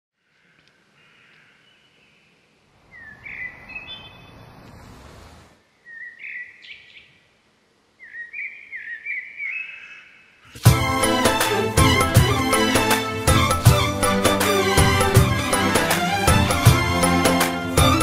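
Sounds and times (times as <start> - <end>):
bird chirping: 0.2 - 4.9, 5.6 - 10.6
outdoor background rush: 2.7 - 5.8.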